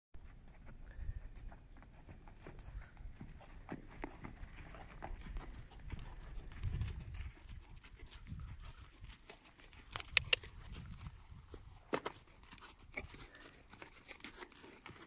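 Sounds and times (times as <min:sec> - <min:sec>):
sharp clicks: 0:09.7 - 0:10.5.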